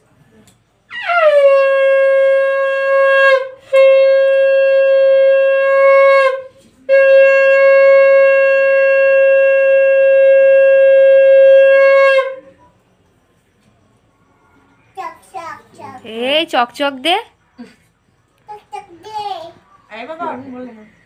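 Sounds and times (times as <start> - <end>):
conch shell blasts: 0.9 - 12.5.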